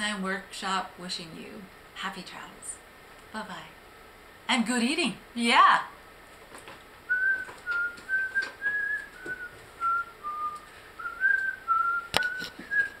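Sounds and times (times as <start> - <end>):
person whistling a tune: 7.1 - 13.0.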